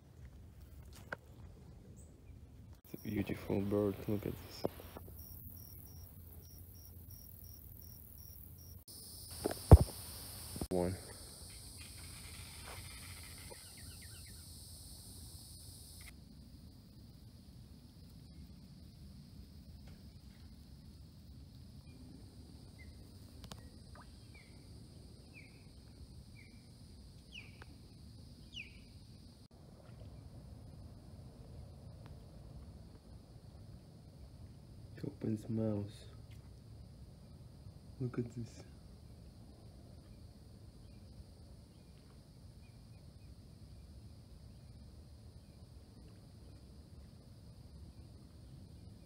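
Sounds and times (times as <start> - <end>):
steady high hiss: 2.8 - 5.5, 8.9 - 27.4
faint bird chirps: 11.8 - 14.5, 22.7 - 25.8, 27.3 - 27.6, 28.4 - 29.0
bird chirping: 28.4 - 28.9.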